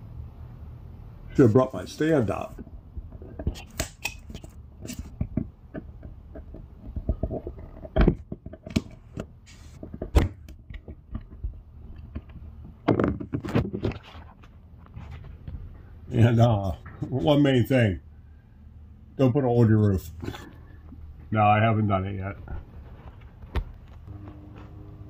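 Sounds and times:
knocking and rubbing: 2.5s - 15.8s.

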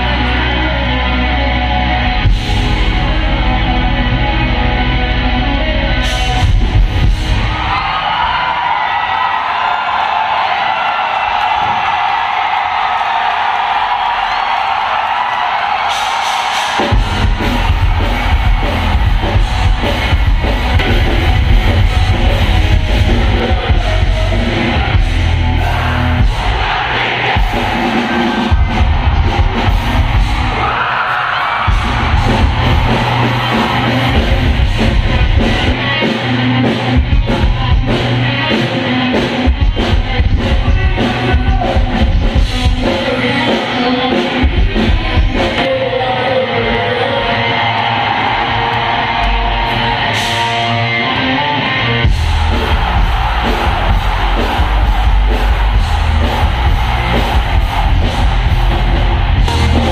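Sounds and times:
live rock band playing: 0.0s - 8.3s, 13.5s - 59.9s
crowd yelling along: 0.0s - 59.9s
person singing: 35.4s - 47.8s, 59.5s - 59.9s.

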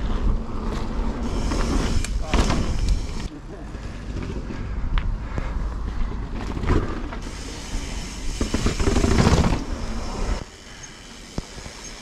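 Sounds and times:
bike clattering over bumps: 0.7s - 4.7s, 6.0s - 7.4s, 8.0s - 10.5s.

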